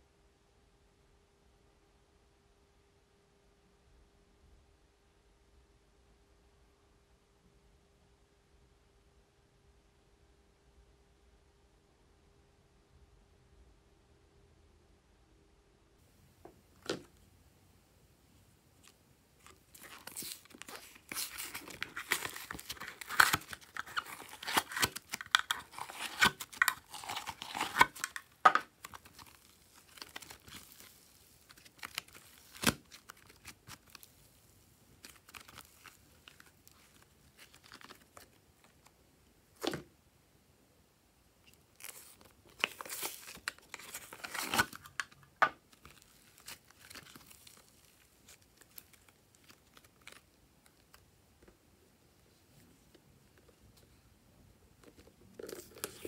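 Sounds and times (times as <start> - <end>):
slime crackling and tearing: 19.4 - 34.3, 35.0 - 38.3, 45.8 - 50.2.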